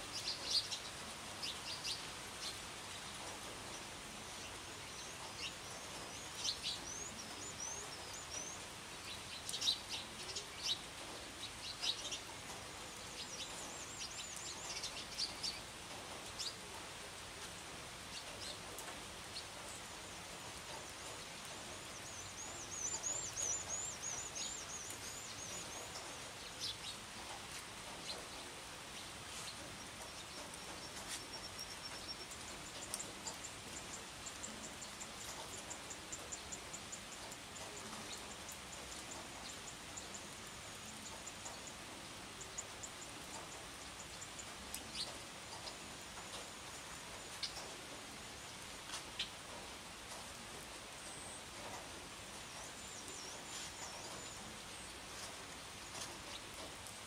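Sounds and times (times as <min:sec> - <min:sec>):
gentle rain hiss: 0:00.0 - 0:57.0
birds chirping: 0:00.1 - 0:16.7, 0:18.1 - 0:47.7.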